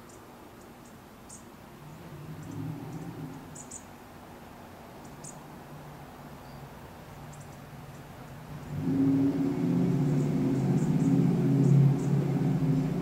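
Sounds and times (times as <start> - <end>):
low hum: 8.5 - 13.0.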